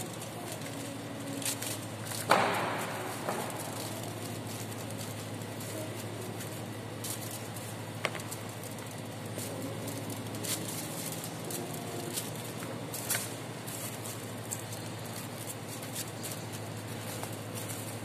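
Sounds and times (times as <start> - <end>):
low room hum: 0.0 - 18.0.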